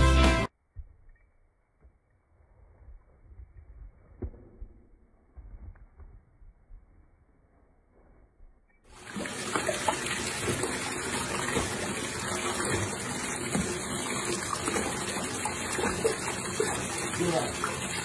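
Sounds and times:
water rushing from tap into bathtub: 0:09.0 - 0:18.0.

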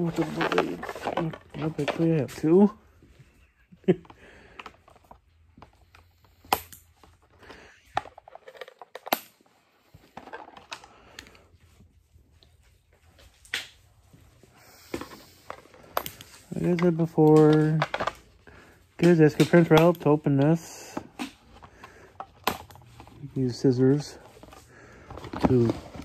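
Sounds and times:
packaging rustling: 0:00.0 - 0:02.5, 0:21.4 - 0:26.0.

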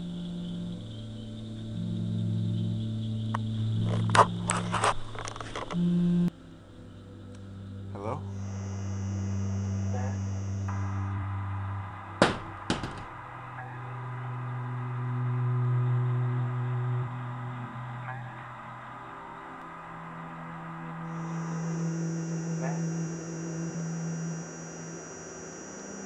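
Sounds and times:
low synthetic drone: 0:00.0 - 0:26.0
high steady tone: 0:08.2 - 0:13.8, 0:19.6 - 0:26.0
sharp clicking hits: 0:12.2 - 0:13.3.

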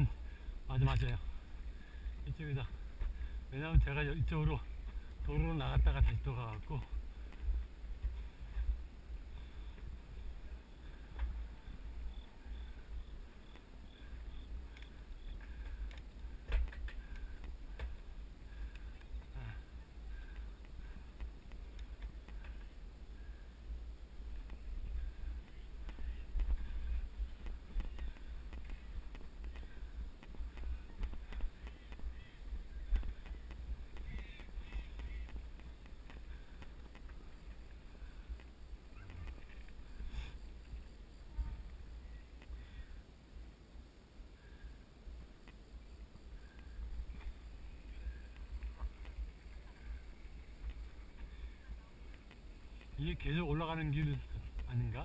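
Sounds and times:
wind and tyres rumbling: 0:00.0 - 0:55.0
faint high chirps: 0:37.7 - 0:43.0.

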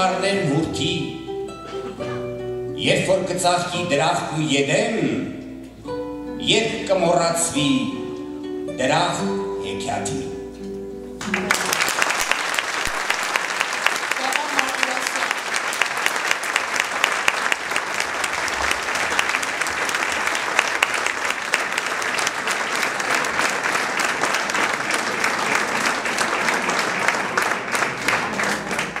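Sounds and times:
audience applauding: 0:11.2 - 0:29.0.

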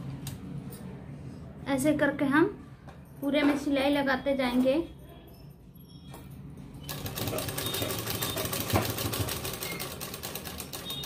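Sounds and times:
sewing machine stitching: 0:06.8 - 0:11.0.

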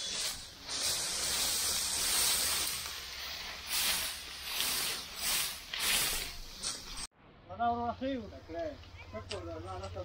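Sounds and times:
dry sugarcane rustling: 0:00.0 - 0:07.1
steady high hiss: 0:00.0 - 0:10.0.

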